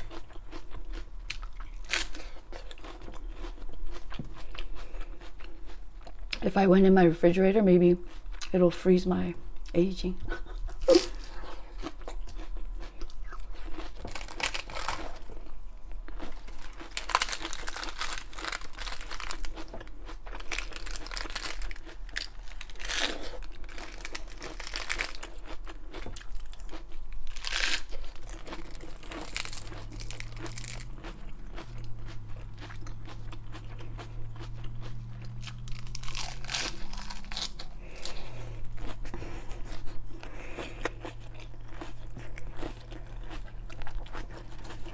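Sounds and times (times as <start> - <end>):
lettuce crunching being chewed: 0.0 - 6.5, 9.6 - 44.9
lettuce leaves tearing: 14.0 - 15.2, 16.5 - 19.6, 20.4 - 25.3, 27.2 - 30.9, 35.4 - 38.4.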